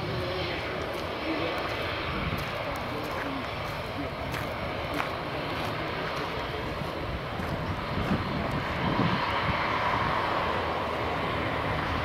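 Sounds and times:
jet engines rushing and whining: 0.0s - 12.0s.

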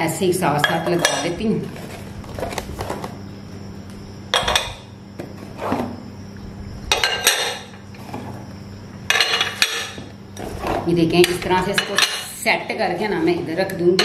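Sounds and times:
glass bowls clinking: 6.9s - 7.8s, 9.1s - 10.1s.

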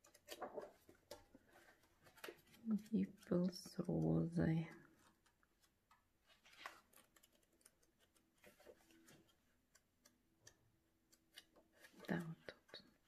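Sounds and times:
paper pages being turned: 0.0s - 13.0s.

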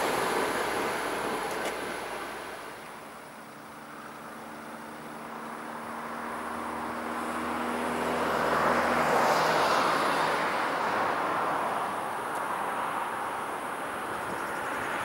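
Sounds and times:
vehicle approaching: 3.6s - 12.0s.

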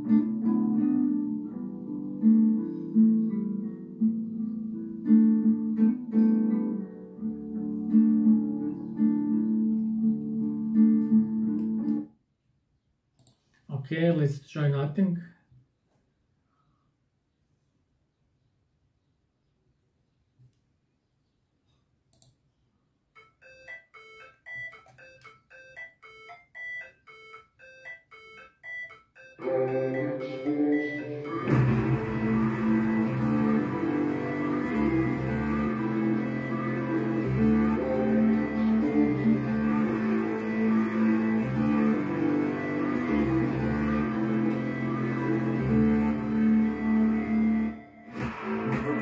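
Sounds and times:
bright repeating melody notes: 23.2s - 47.8s
acoustic guitar strumming chords: 29.4s - 49.0s.

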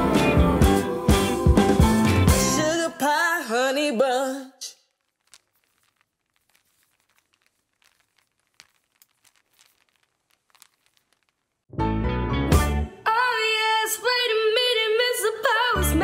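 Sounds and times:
music with singing: 0.0s - 3.0s.

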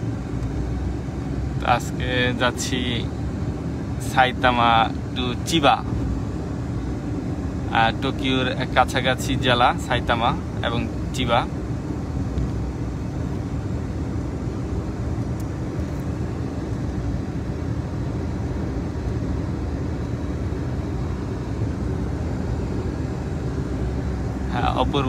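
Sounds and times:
car engine hum: 0.0s - 25.0s.

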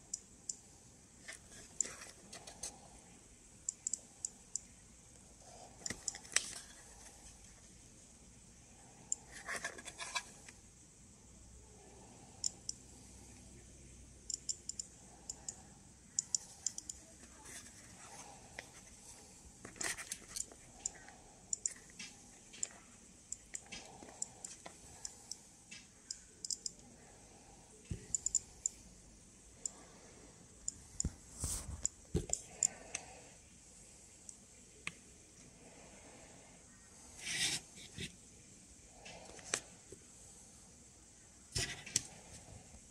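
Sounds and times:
geiger counter clicking: 0.0s - 0.6s, 3.7s - 4.7s, 5.8s - 6.3s, 12.4s - 12.8s, 14.2s - 17.1s, 20.3s - 26.9s, 28.0s - 28.8s.

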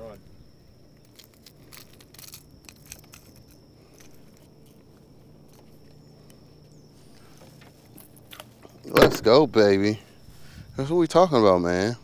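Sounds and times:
low hum: 0.0s - 12.0s
high whine: 3.0s - 12.0s.

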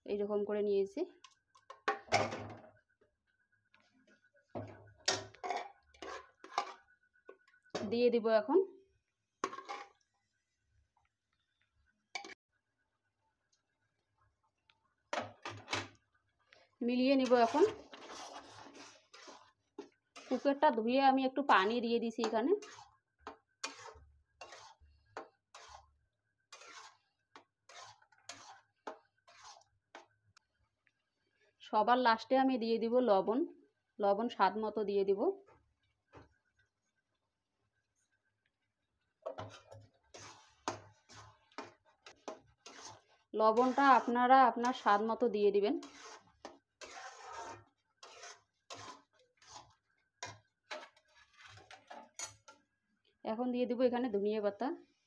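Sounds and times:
metal ladle scraping a pot: 4.6s - 8.0s, 9.4s - 10.0s, 17.1s - 20.7s, 21.4s - 30.1s, 39.3s - 52.6s.

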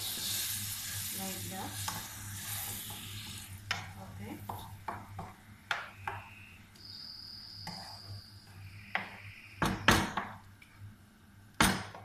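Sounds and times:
wooden spatula stirring in pan: 0.0s - 6.3s.

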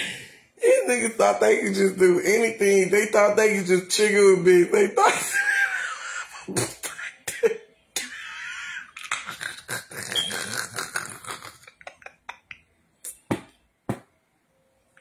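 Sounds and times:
woman laughing hard: 11.5s - 12.6s.

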